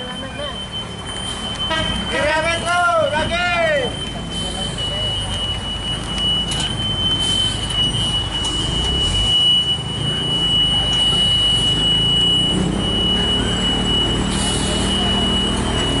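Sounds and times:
diesel truck engine under load: 3.9 - 16.0
high-pitched whine: 7.3 - 16.0.

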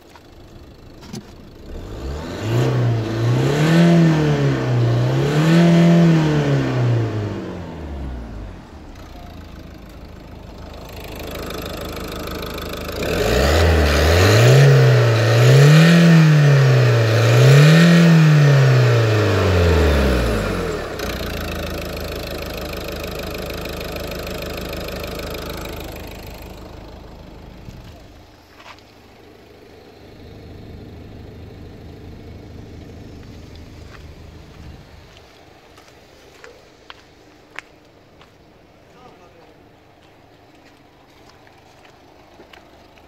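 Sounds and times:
diesel engine revving: 0.0 - 36.2
diesel engine idling: 0.0 - 43.0.

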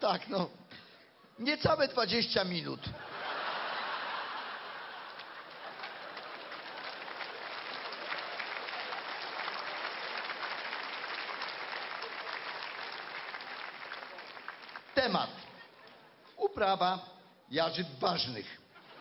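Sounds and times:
audience applauding: 3.3 - 15.7.

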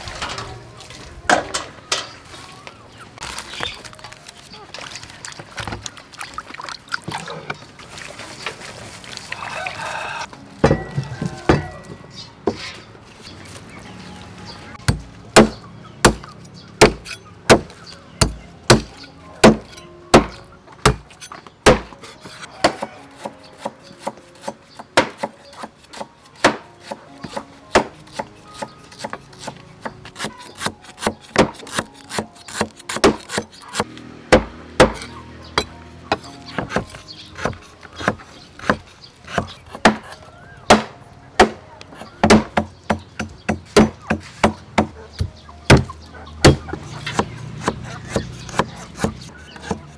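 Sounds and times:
water sloshing in metal basin: 3.3 - 9.5
cleaver chopping on wooden block: 14.8 - 49.9.

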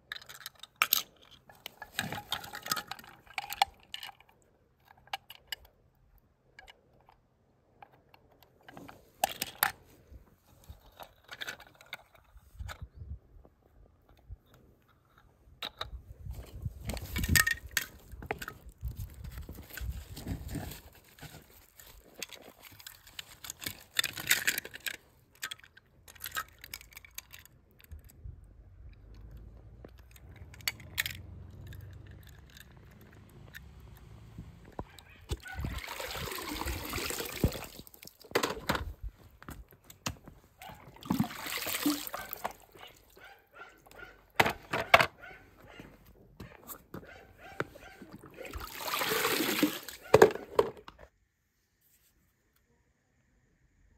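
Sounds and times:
toy cars clicking on stone: 0.0 - 9.8, 10.7 - 12.9, 21.8 - 35.6
water sloshing and splashing: 35.3 - 38.7, 40.6 - 43.2, 48.1 - 50.6.

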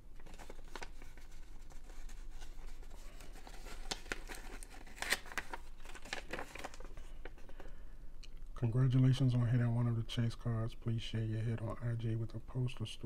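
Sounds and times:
paper rustling and crackling: 0.1 - 7.7.

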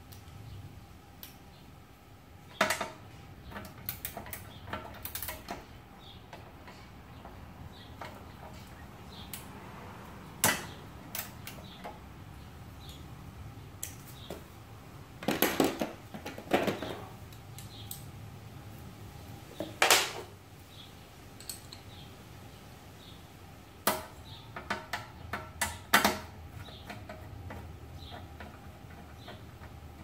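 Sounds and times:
metal clinks of socket and bolts: 21.4 - 21.8.

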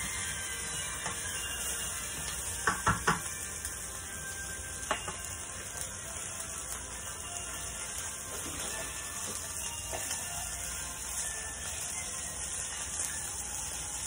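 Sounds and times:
chicken sizzling in a skillet: 0.0 - 14.0.

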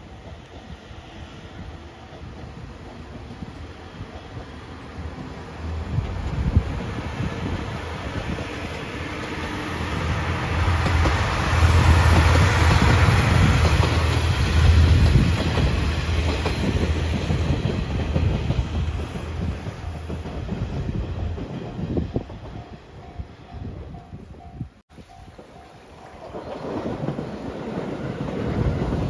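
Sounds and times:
diesel train engine hum: 0.0 - 25.7
wheels clacking over rail joints: 2.0 - 23.2.

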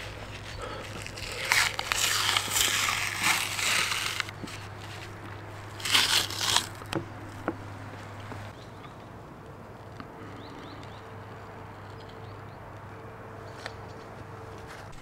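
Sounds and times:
crinkling paper towel: 0.0 - 7.0
membrane tearing off ribs: 0.0 - 7.0.

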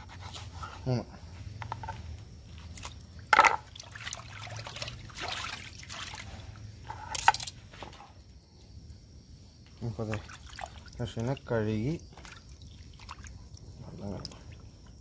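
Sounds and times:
water sloshing in a bowl: 2.0 - 8.3, 9.6 - 15.0.

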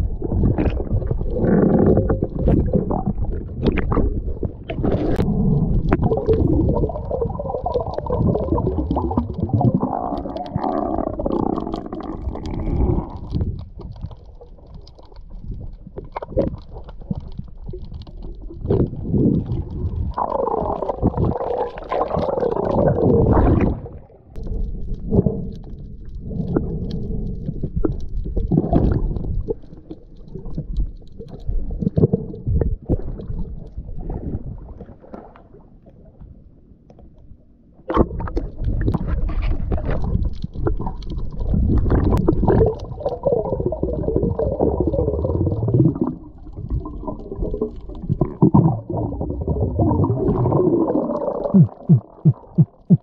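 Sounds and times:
muffled underwater sloshing and bubbling: 0.0 - 53.0.

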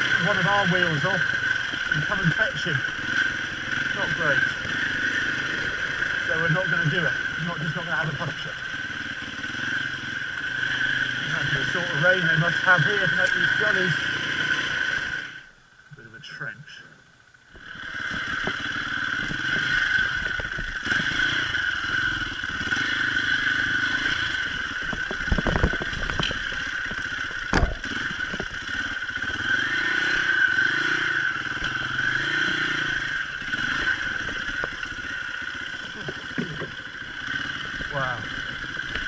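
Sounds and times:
motorcycle engine revving: 0.0 - 15.5, 17.5 - 39.0
bike knocking on rocks: 27.0 - 28.6.

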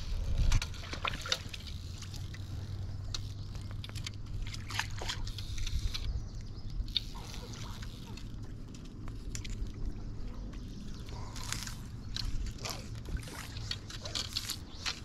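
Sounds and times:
river water sloshing and trickling: 0.0 - 15.0
steady low rumble: 0.0 - 15.0
small splashes: 0.7 - 2.5, 4.3 - 5.7
fishing reel clicks: 4.9 - 9.6.

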